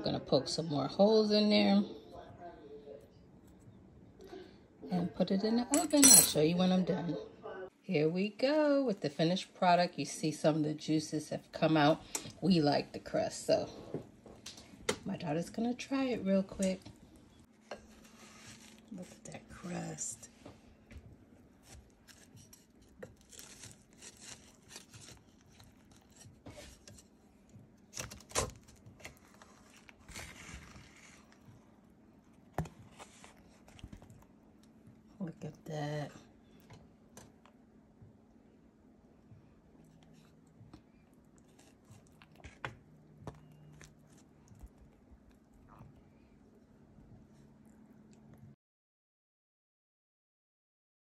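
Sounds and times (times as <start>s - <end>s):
faint low hum: 0.0s - 48.6s
spatula crackling pie crust: 15.5s - 34.8s, 39.6s - 48.4s.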